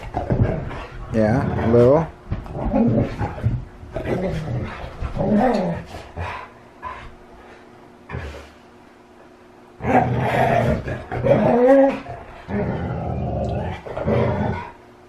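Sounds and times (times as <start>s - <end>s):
huskies crying while playing: 9.8s - 12.7s.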